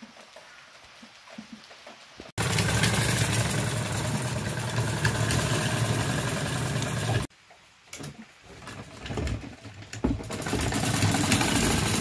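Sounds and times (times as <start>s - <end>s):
sewing machine clatter: 2.4s - 7.3s, 8.0s - 12.0s.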